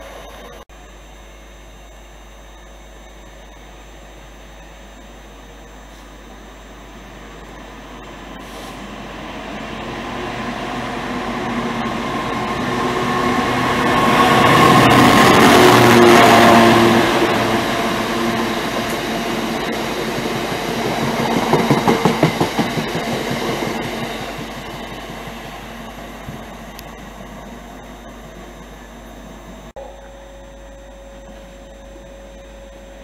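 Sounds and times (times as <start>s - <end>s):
diesel locomotive engine passing: 6.2s - 29.7s
train wheels clicking over track: 17.0s - 27.4s.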